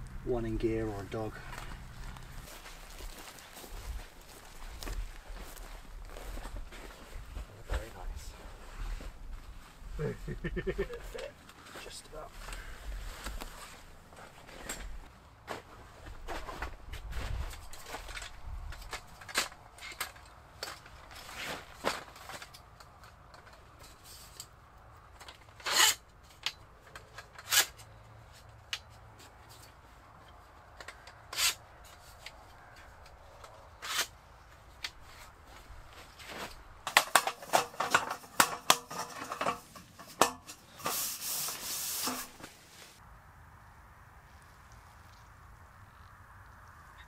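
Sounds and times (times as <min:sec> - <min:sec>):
wooden slats rattling: 0:36.9 - 0:40.5.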